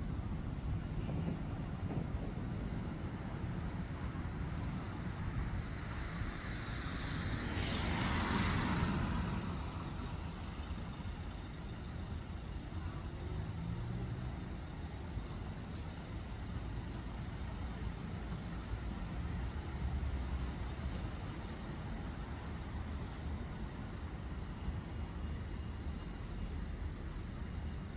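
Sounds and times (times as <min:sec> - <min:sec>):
low rumble of traffic: 0:00.0 - 0:27.9.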